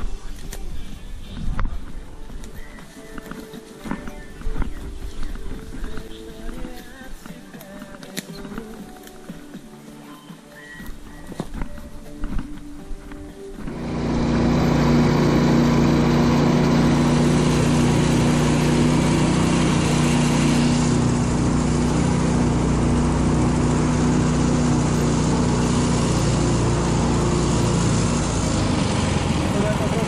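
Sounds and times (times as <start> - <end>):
vehicle engine running: 13.5 - 30.0.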